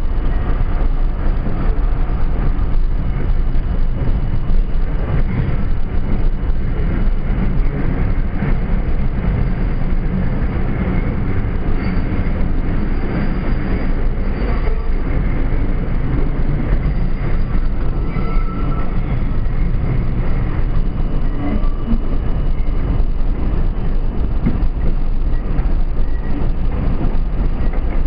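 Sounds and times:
train wheels rumbling and clattering: 0:00.0 - 0:28.0
faint high squeal: 0:11.6 - 0:19.6.

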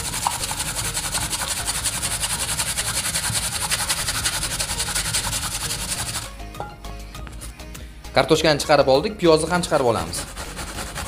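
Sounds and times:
potato grated on metal grater: 0:00.0 - 0:06.4, 0:09.8 - 0:11.0.

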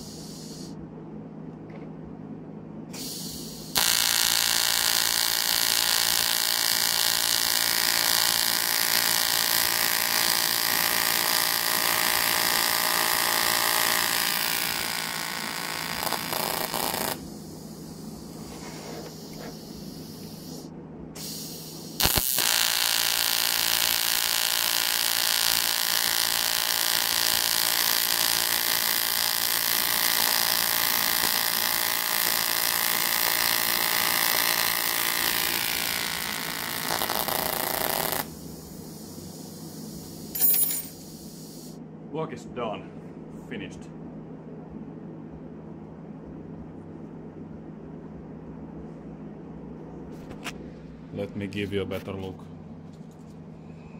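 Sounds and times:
welding arc buzzing: 0:00.0 - 0:00.7, 0:03.0 - 0:18.4, 0:19.0 - 0:41.8.

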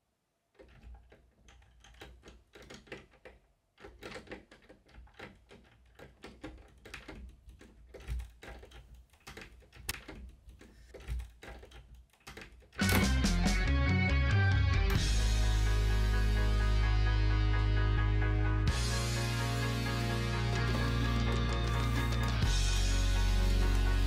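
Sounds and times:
clicking and tapping at door: 0:00.6 - 0:13.1.

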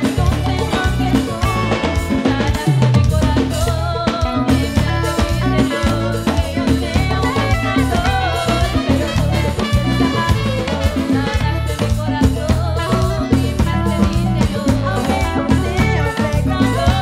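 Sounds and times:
live band dance rhythm: 0:00.0 - 0:17.0
women singing: 0:00.0 - 0:17.0
saxophones: 0:03.7 - 0:17.0.

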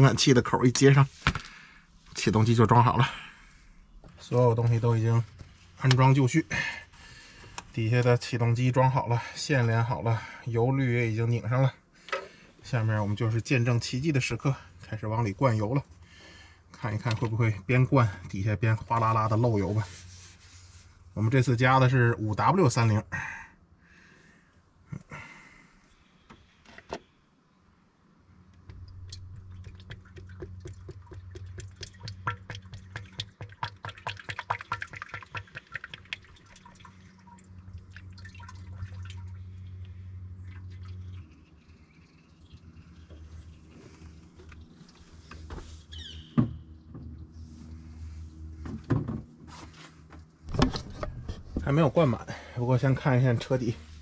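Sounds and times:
oil gurgling through a funnel: 0:28.7 - 0:45.2.

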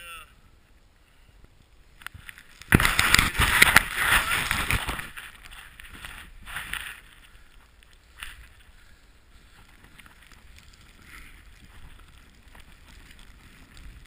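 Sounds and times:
snowboard swishing through snow: 0:02.7 - 0:07.1
wind rumble on microphone: 0:09.4 - 0:14.0.

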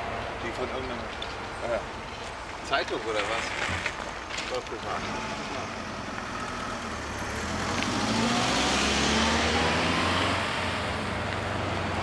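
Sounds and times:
car driving past: 0:04.8 - 0:12.0.

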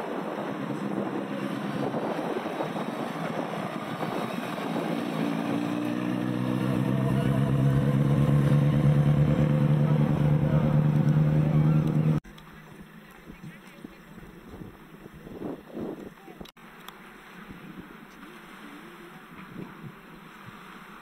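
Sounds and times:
motor engine running: 0:04.7 - 0:12.2.

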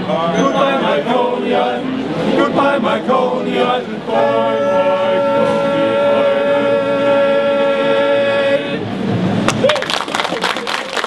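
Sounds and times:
male choir holding a chord: 0:00.4 - 0:08.8.

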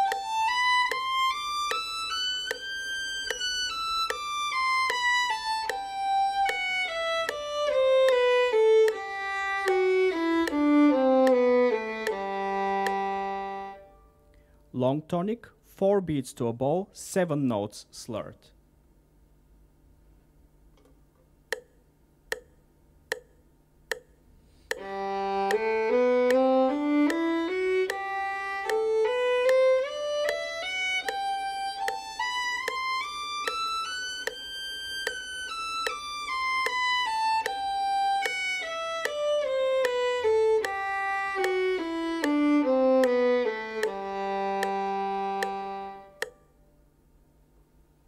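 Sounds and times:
violin playing a scale: 0:00.0 - 0:14.0, 0:24.7 - 0:46.3
metronome ticking: 0:00.0 - 0:14.4, 0:21.5 - 0:46.6.

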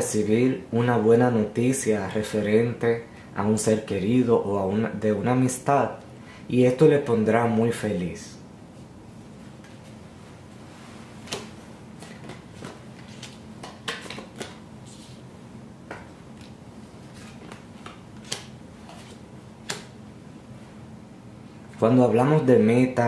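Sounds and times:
cards clicking on wooden table: 0:11.3 - 0:14.6, 0:17.2 - 0:19.9.

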